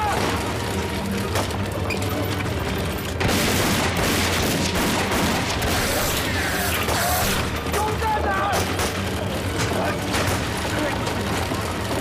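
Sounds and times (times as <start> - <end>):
explosions and gunfire: 3.1 - 7.8, 8.5 - 12.0.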